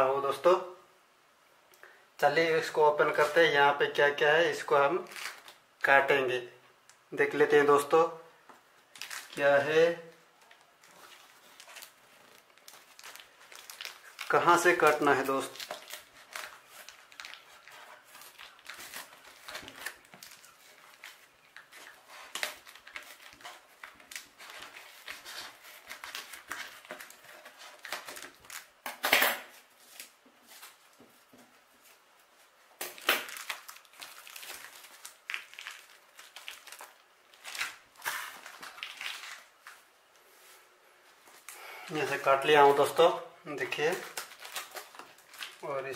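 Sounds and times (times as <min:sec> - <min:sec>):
packing tape rustling: 0:05.0 - 0:05.6, 0:08.9 - 0:09.5, 0:10.4 - 0:30.9, 0:32.8 - 0:39.9, 0:43.6 - 0:45.9.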